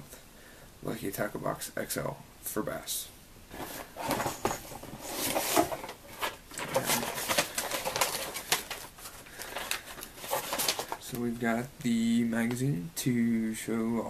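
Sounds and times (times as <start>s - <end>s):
paper packing rustling: 3.5s - 11.6s.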